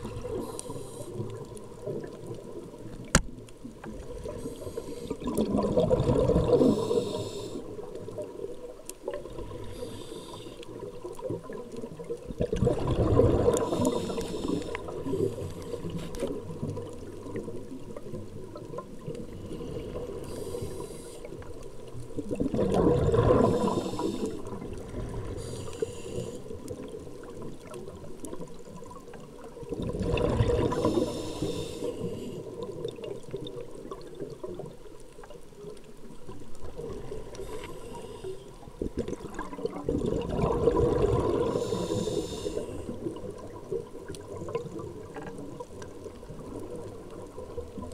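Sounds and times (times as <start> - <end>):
exhaled bubbles underwater: 0.0 - 47.9
faint high regulator hiss: 6.7 - 7.7, 30.8 - 32.4, 41.6 - 42.9.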